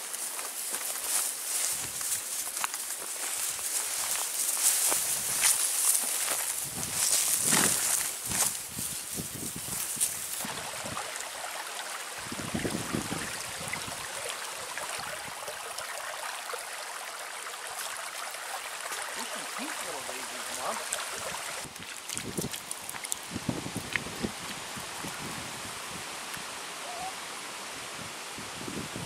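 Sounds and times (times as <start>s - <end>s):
creek babbling over rocks: 10.2s - 25.3s.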